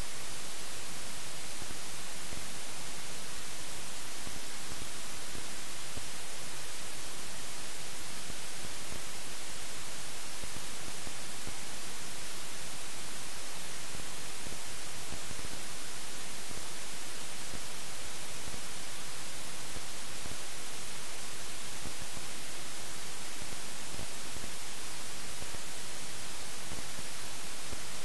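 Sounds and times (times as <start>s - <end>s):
static hiss: 0.0s - 28.0s.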